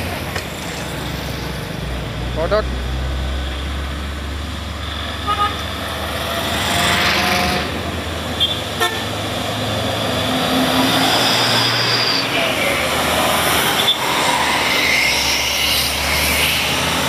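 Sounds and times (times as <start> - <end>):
truck engines under load: 0.0 - 17.0
vehicle horn toots: 5.2 - 5.6, 8.4 - 9.1.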